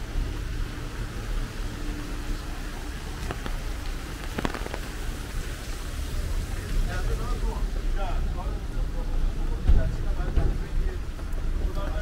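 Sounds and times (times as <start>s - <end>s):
heavy rain on street: 0.0s - 12.0s.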